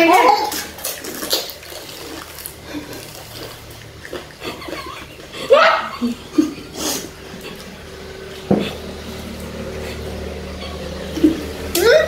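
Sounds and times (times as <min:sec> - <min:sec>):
women laughing and giggling: 0:04.4 - 0:07.9.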